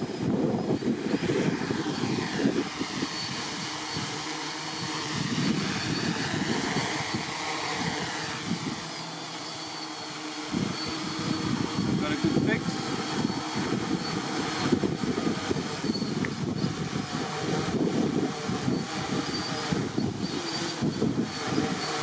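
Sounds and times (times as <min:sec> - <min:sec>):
wind buffeting microphone: 0:00.0 - 0:09.4, 0:10.4 - 0:22.0
drone propellers whirring: 0:00.0 - 0:22.0.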